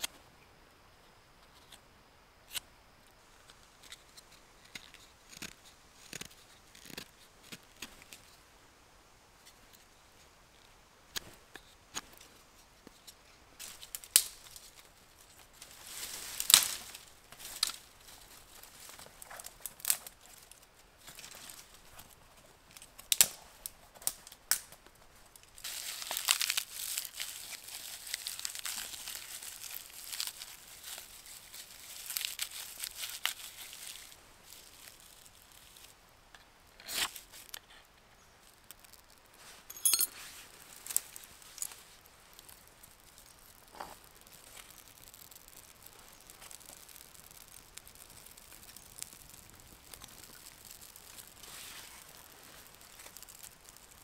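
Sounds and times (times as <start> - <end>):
dry bark crumpling: 12.9 - 39.6, 40.3 - 54.0
twigs snapping: 13.6 - 14.9, 15.6 - 17.9, 18.8 - 21.6, 22.7 - 23.4, 25.4 - 35.9, 40.8 - 54.0.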